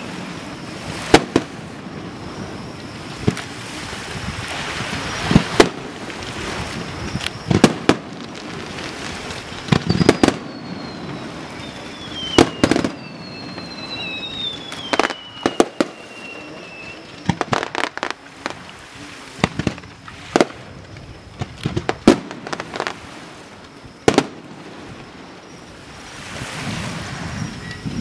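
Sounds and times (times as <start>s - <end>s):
fireworks bursting: 0.0s - 26.8s
falling whistle: 9.7s - 17.2s, 27.2s - 28.0s.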